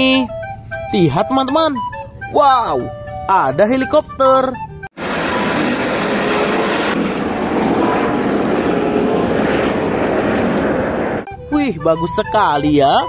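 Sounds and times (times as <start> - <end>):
helicopter flying low: 4.9 - 11.6.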